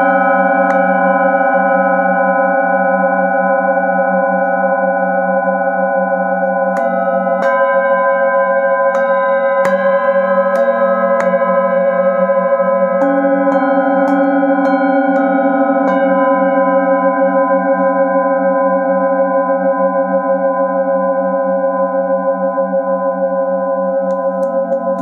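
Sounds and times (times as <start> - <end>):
singing bowls ringing: 0.0 - 25.0
mallet striking singing bowl: 0.6 - 1.1, 6.4 - 17.0.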